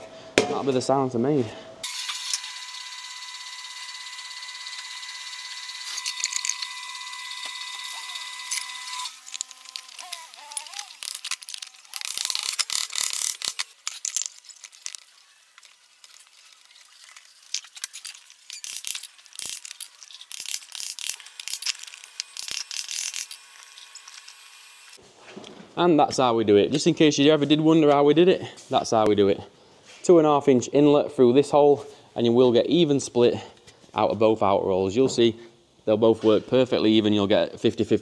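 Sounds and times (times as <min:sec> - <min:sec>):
high-pitched tool whine: 0:01.8 - 0:13.0, 0:14.8 - 0:25.0.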